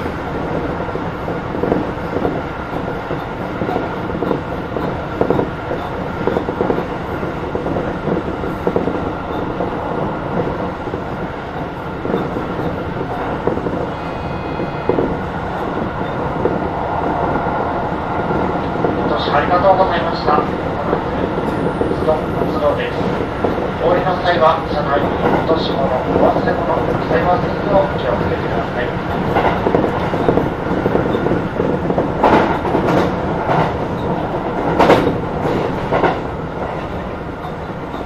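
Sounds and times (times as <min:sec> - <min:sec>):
train wheels rumbling on rail: 0:00.0 - 0:38.0
brief high ringing tone: 0:13.9 - 0:15.2.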